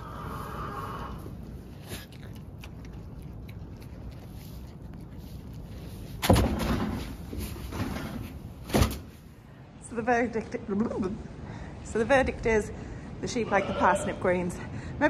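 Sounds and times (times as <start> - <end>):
sheep chewing: 1.2 - 8.6.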